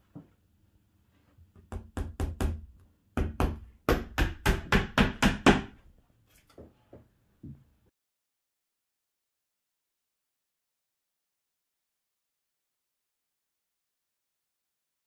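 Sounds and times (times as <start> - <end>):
hammer striking nails: 1.7 - 5.8.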